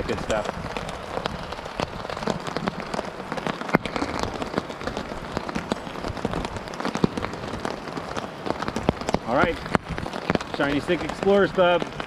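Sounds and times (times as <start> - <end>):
rain hissing on a tarp: 0.0 - 12.0
raindrops tapping on a tarp: 0.0 - 12.0.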